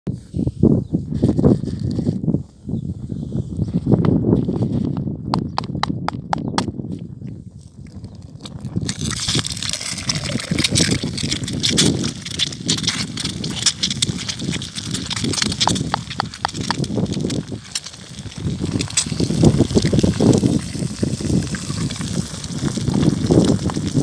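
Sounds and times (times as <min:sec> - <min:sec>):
egg sizzling in a pan: 0:08.5 - 0:24.0.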